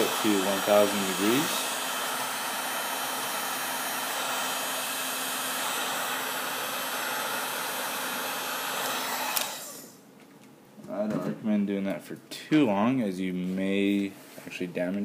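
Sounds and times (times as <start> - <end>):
heat gun blowing air: 0.0 - 10.0.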